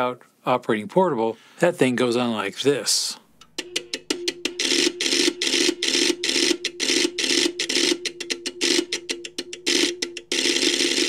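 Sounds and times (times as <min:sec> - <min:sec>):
steady hum: 0:03.3 - 0:11.0.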